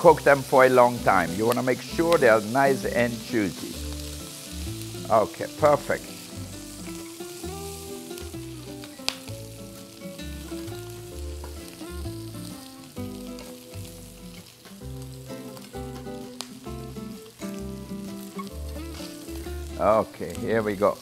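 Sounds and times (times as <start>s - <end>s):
background music with bass: 0.0s - 20.9s
shrimp sizzling in a pan: 0.0s - 21.0s.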